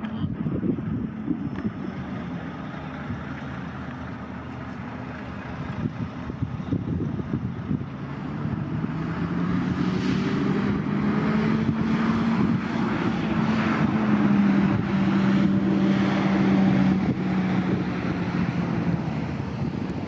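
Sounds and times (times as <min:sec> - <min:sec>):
diesel locomotive engine drone: 0:00.0 - 0:20.0.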